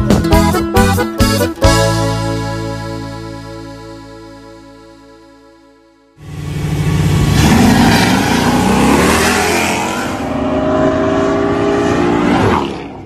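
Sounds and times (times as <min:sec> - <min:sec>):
vehicle engine revving: 0:06.2 - 0:13.0.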